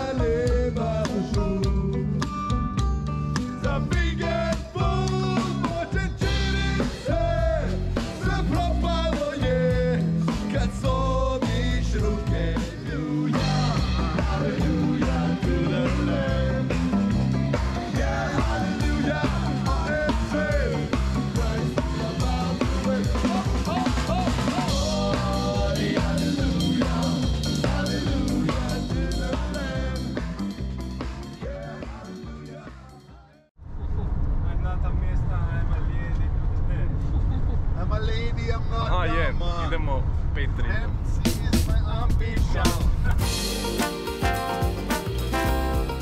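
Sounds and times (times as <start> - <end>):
person singing: 0.0 - 2.4, 3.5 - 30.6, 31.2 - 33.4
bass line: 0.0 - 33.1, 41.1 - 46.0
drum kit beat: 0.0 - 33.3, 41.3 - 46.0
guitar: 0.0 - 33.5, 42.4 - 46.0
horn melody: 43.2 - 46.0
trumpet: 43.2 - 46.0.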